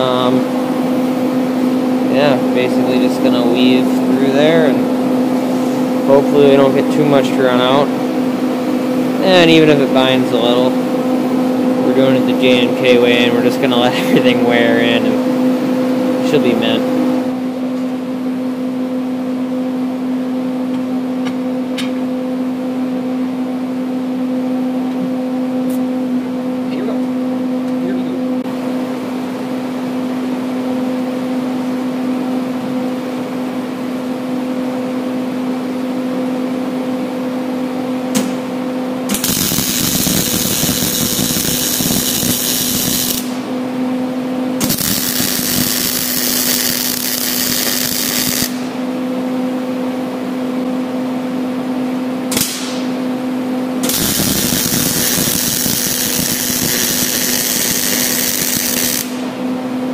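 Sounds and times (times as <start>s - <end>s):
welding machine humming: 0.0s - 17.4s, 37.8s - 49.2s, 52.1s - 59.9s
arc welding crackle and hiss: 39.1s - 43.4s, 44.6s - 48.8s, 53.8s - 59.3s.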